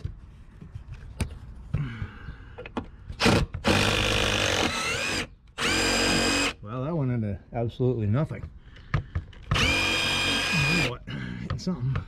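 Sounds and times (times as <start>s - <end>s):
cordless power driver running: 3.7s - 6.6s, 9.5s - 11.0s.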